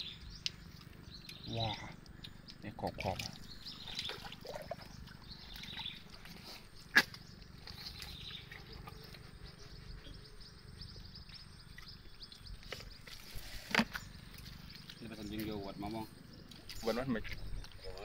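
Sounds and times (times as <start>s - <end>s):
faint crackle of small ticks: 0.2s - 4.0s, 11.2s - 17.9s.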